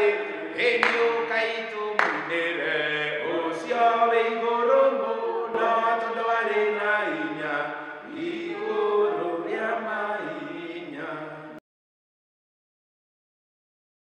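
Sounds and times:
man singing a hymn: 0.0s - 7.7s.

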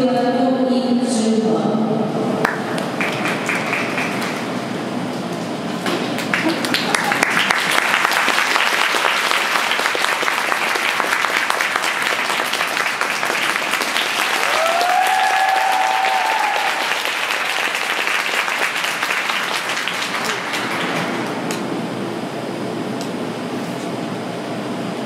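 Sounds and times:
audience applauding: 2.4s - 4.7s, 5.9s - 21.6s
spectator cheering call: 14.3s - 17.4s.

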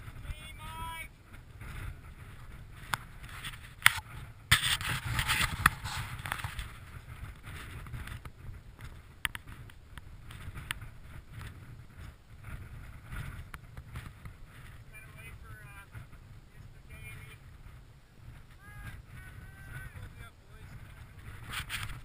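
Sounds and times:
wind rumbling on microphone: 0.0s - 22.0s
scraping rustle: 1.3s - 16.2s, 19.9s - 22.0s.

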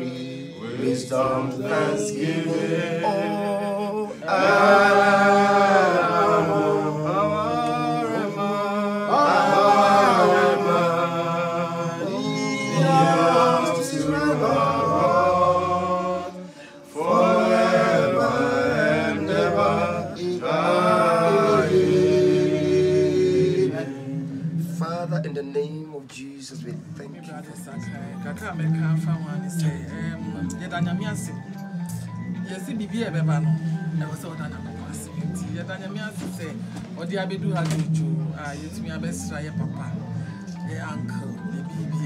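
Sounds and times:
group singing a worship song: 0.0s - 25.2s.

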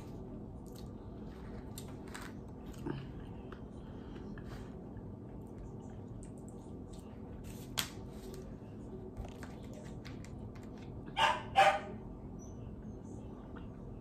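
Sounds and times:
dog barking: 11.1s - 12.0s.

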